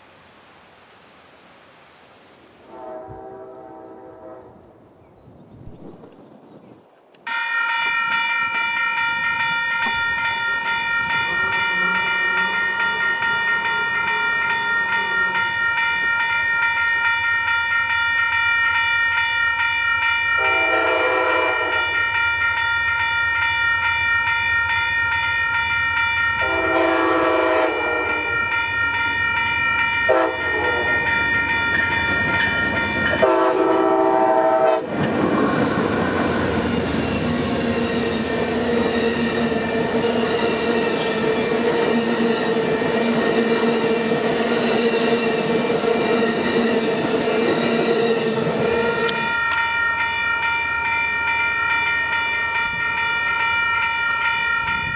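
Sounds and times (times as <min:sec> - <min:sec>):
train horn blasts: 0:02.6 - 0:04.7, 0:11.0 - 0:16.4, 0:20.4 - 0:22.1, 0:26.4 - 0:28.5, 0:30.0 - 0:31.2, 0:33.1 - 0:34.9, 0:48.6 - 0:49.6
crossing bell ringing: 0:07.3 - 0:34.7, 0:35.4 - 0:54.9
train rumbling past on rails: 0:07.9 - 0:18.9, 0:20.3 - 0:54.9.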